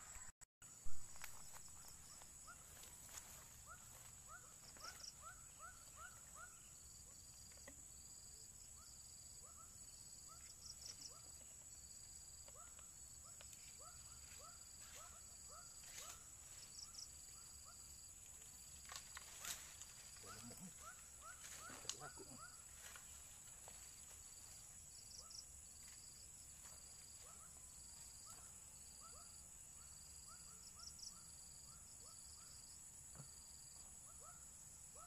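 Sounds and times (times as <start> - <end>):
animals calling with rising chirps: 1.8 - 6.9.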